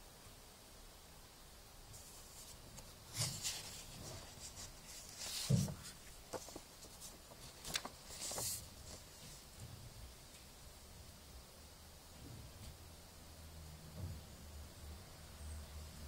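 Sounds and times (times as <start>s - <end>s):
paper flyer rustling and crackling: 2.0s - 9.6s.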